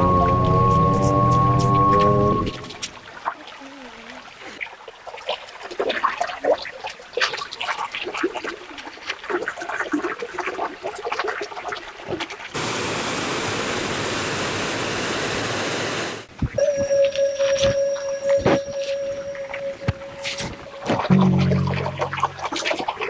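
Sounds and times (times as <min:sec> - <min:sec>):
water splashing and bubbling: 0:02.6 - 0:12.6, 0:16.6 - 0:23.0.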